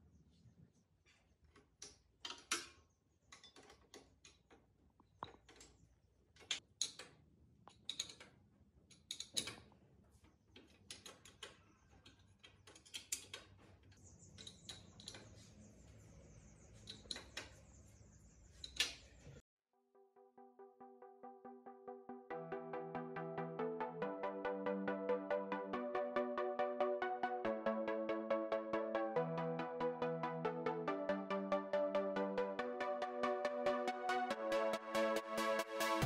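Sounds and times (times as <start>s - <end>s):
metal tools clicking and tapping: 1.5s - 9.7s, 10.6s - 15.4s, 16.9s - 17.6s.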